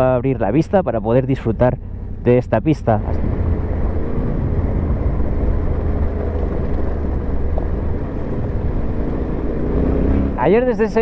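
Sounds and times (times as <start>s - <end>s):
motorcycle engine running: 3.0s - 11.0s.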